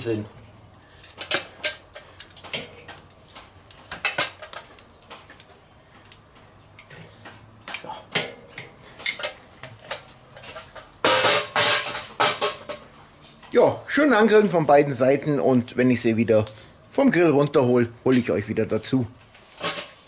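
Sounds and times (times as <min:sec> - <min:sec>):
metal tongs clicking on grill grate: 0:01.0 - 0:11.0.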